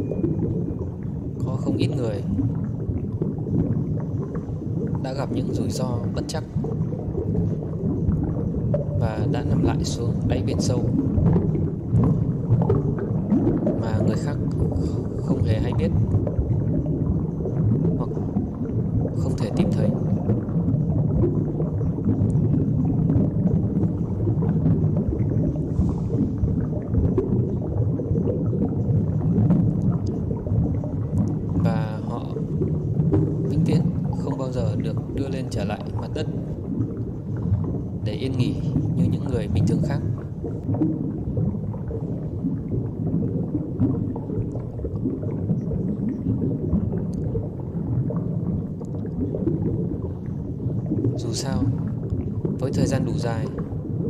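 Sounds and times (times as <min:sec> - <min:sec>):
hiss of bubbles: 0:00.0 - 0:54.0
low underwater rumble: 0:00.0 - 0:54.0
faint clicks: 0:29.8 - 0:30.2, 0:31.0 - 0:31.4, 0:47.1 - 0:47.3, 0:48.8 - 0:49.2.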